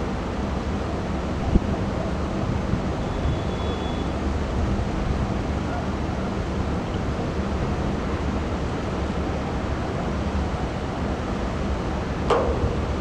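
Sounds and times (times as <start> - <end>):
wind noise on microphone: 1.3 - 10.6
sharp knock: 12.3 - 13.0.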